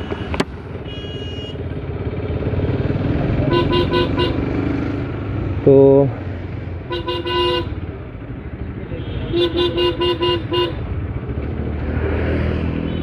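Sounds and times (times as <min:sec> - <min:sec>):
vehicle horn beeps: 0:00.0 - 0:01.6, 0:03.5 - 0:04.4, 0:09.0 - 0:10.8, 0:12.8 - 0:13.0
motorcycle engine: 0:00.0 - 0:13.0
road rumble: 0:00.0 - 0:13.0.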